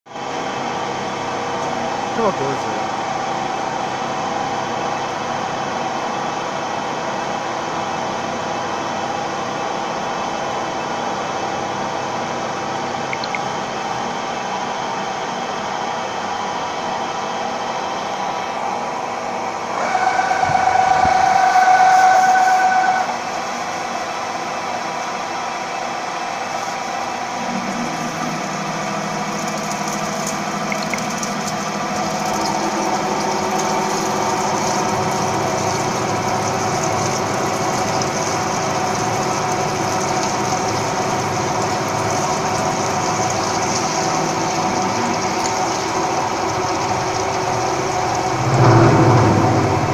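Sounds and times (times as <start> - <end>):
drilling machine high whine: 0.2 - 49.9
low steady machine hum: 23.4 - 49.9.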